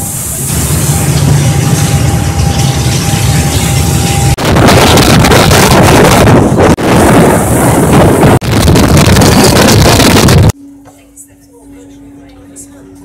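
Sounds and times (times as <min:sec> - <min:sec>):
ferry running noise: 0:00.0 - 0:13.0
strong wind on microphone: 0:00.6 - 0:10.6.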